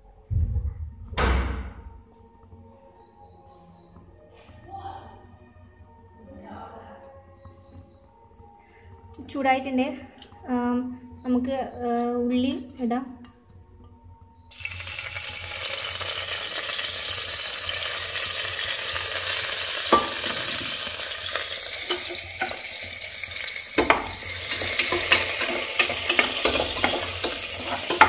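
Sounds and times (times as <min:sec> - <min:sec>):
onions sizzling in hot oil: 0:14.5 - 0:28.0
spoon scraping a pot: 0:19.9 - 0:28.0.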